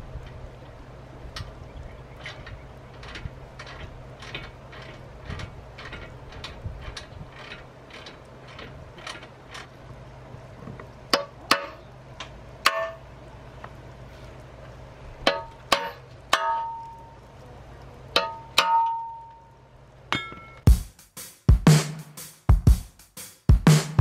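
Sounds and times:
ratchet clicks: 0:02.2 - 0:09.7
hammer striking metal bumper: 0:11.1 - 0:11.8, 0:12.6 - 0:13.0, 0:15.2 - 0:17.0, 0:18.2 - 0:19.4, 0:20.1 - 0:20.8.

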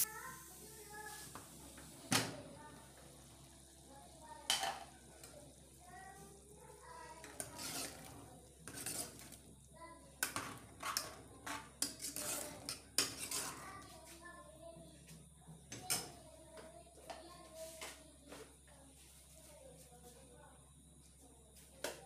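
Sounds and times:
ladle scraping and clinking pot: 0:07.2 - 0:09.4, 0:10.2 - 0:13.6.

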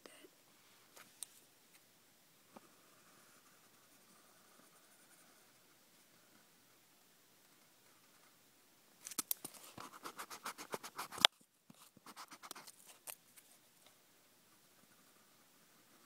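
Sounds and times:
marker scratching on paper: 0:09.6 - 0:11.3, 0:12.0 - 0:12.8.

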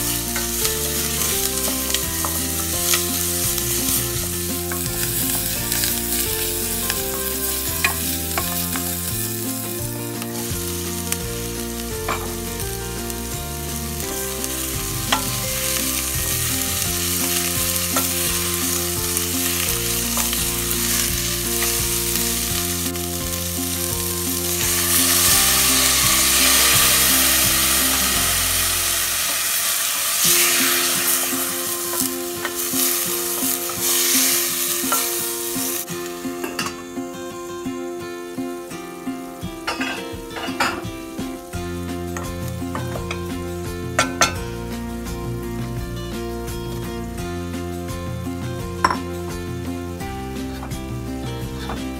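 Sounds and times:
vegetables sizzling in a pot: 0:00.0 - 0:51.9
broth poured hissing: 0:12.9 - 0:36.6.

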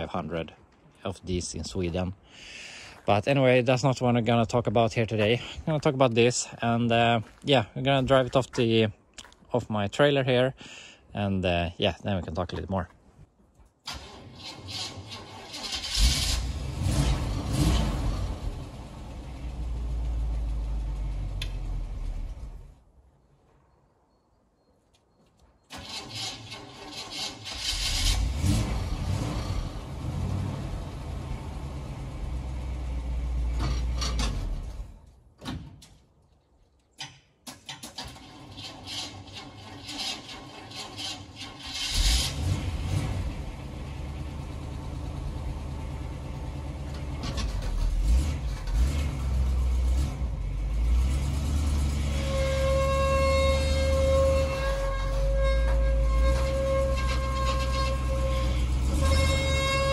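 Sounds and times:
truck engine starting and revving: 0:13.9 - 0:22.8, 0:25.7 - 0:35.1, 0:37.8 - 0:59.9.

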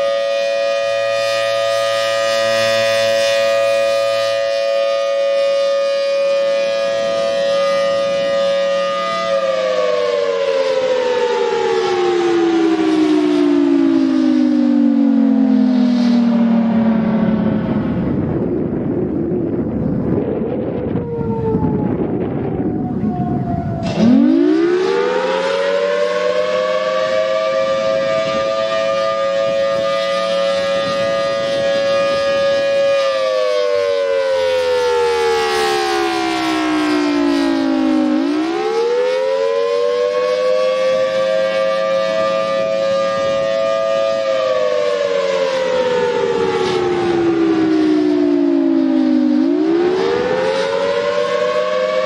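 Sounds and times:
warning siren wailing: 0:00.0 - 0:52.0
low rumble: 0:16.6 - 0:24.3.

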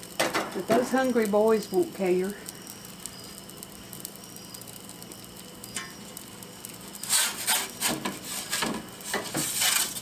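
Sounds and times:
gas pizza oven hissing: 0:00.0 - 0:10.0
metal peel scraping stone: 0:07.0 - 0:10.0.

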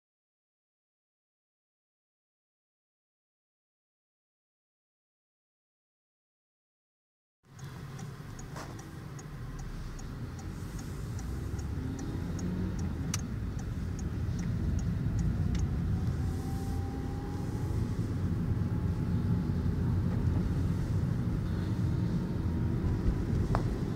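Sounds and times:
car engine and road noise: 0:07.4 - 0:23.9
light regular ticking: 0:07.5 - 0:16.0.

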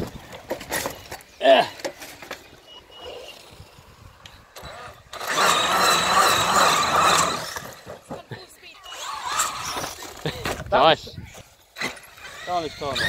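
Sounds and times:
toy truck motor whining: 0:02.3 - 0:10.7, 0:11.8 - 0:13.0.

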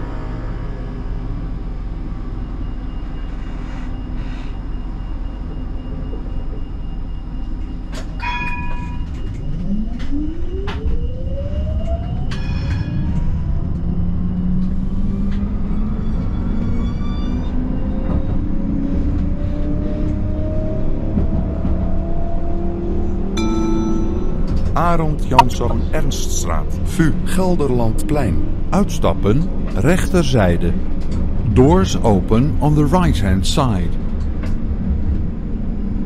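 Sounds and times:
tram low rumble: 0:00.0 - 0:36.0
sharp clicks with ringing tones: 0:23.4 - 0:25.6.

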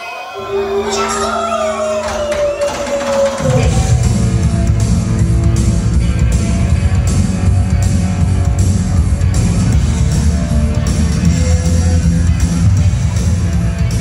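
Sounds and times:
loud music with heavy bass: 0:00.4 - 0:14.0.

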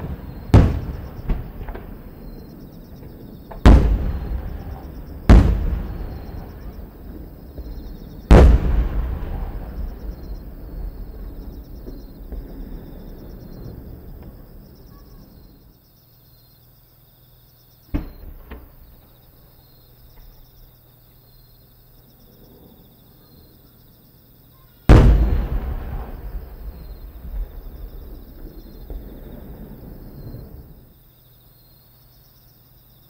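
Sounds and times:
fireworks shells bursting: 0:00.0 - 0:14.5, 0:24.9 - 0:30.8
crickets chirping: 0:00.0 - 0:33.0.

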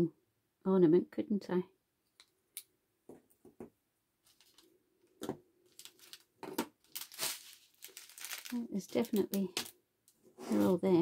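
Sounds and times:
small plastic pieces clicking: 0:05.7 - 0:09.8.

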